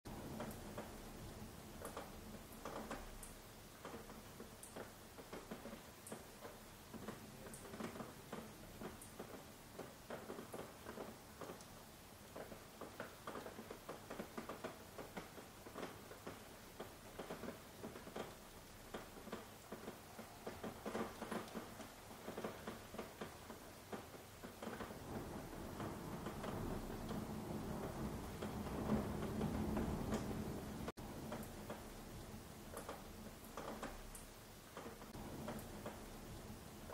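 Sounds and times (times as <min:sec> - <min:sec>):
faint rain hiss: 0:00.1 - 0:36.9
raindrops tapping: 0:00.1 - 0:36.9.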